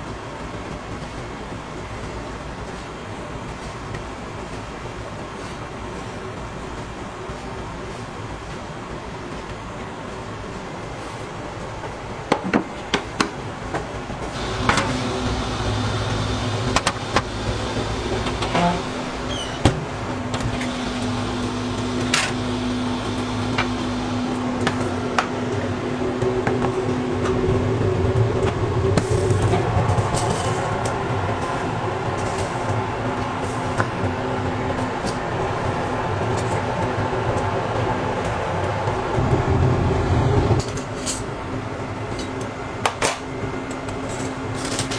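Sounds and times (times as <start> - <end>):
kitchen machinery humming: 10.4 - 44.9.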